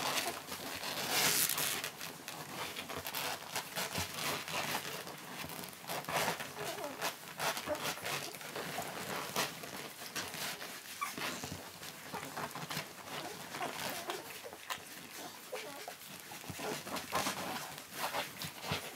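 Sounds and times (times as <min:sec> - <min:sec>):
puppies suckling: 0:00.0 - 0:18.9
pups shuffling on bedding: 0:00.0 - 0:18.9
puppies squeaking: 0:06.3 - 0:09.4, 0:10.1 - 0:18.8.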